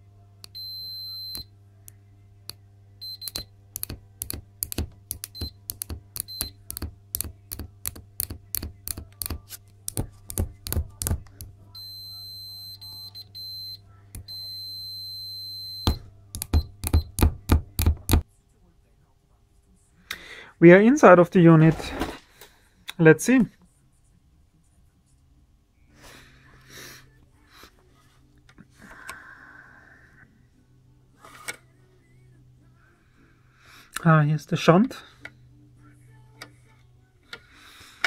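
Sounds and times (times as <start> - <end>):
multimeter continuity beep: 0.4 - 1.5, 3.0 - 7.6, 11.7 - 17.3
metal probe tips clicking: 3.3 - 11.5.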